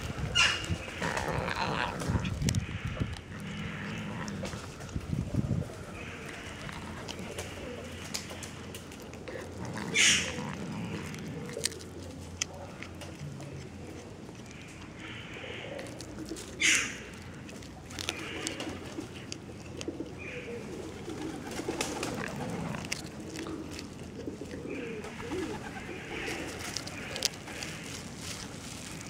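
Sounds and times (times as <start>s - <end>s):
cat chewing and crunching: 0.0s - 29.0s
plastic bag crinkling: 20.9s - 29.0s.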